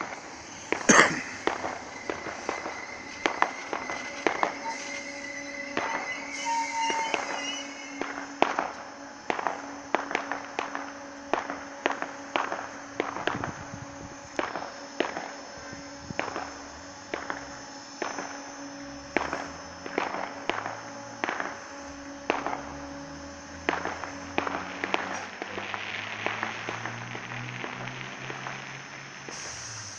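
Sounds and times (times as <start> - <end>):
electric train humming: 0.0 - 25.9
sharp cracks and pops: 23.7 - 29.5.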